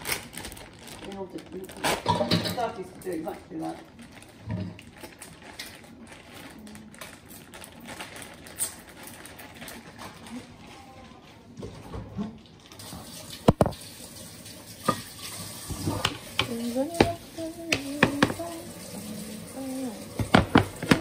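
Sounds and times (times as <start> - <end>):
kitchen knocks and clicks: 15.7 - 18.4, 20.2 - 21.0.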